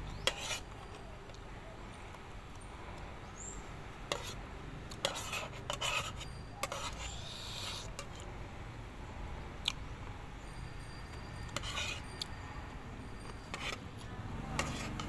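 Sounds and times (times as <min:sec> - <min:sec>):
cutlery scraping on a plate: 0:00.1 - 0:01.0, 0:04.1 - 0:04.4, 0:05.0 - 0:08.2, 0:11.2 - 0:12.4, 0:13.2 - 0:15.0.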